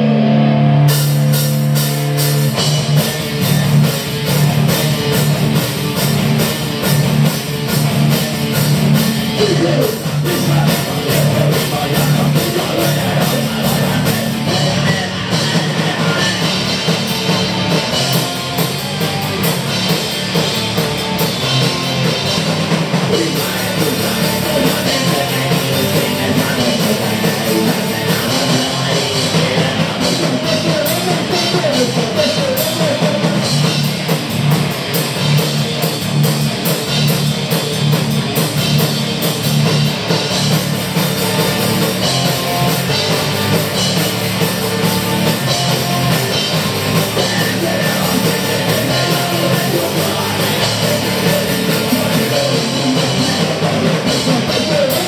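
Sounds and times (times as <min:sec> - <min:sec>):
bass guitar: 0:00.0 - 0:55.0
distorted electric guitars: 0:00.0 - 0:55.0
drum kit: 0:00.0 - 0:55.0
man singing into a microphone: 0:09.4 - 0:16.6, 0:23.1 - 0:33.4, 0:47.1 - 0:55.0.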